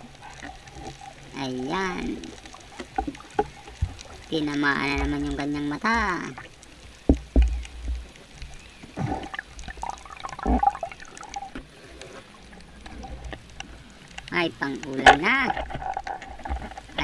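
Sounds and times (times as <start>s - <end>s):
underwater gurgling and bubbling: 0.0s - 17.0s
sharp underwater knocks: 7.0s - 8.1s, 9.0s - 11.7s.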